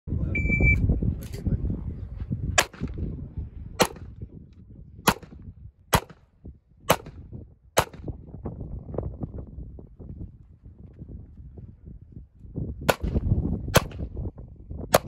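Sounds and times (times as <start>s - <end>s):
pistol shots: 2.6s - 2.9s, 3.8s - 4.1s, 5.1s - 6.2s, 6.9s - 7.2s, 7.8s - 8.1s, 12.9s - 13.2s, 13.8s - 14.0s.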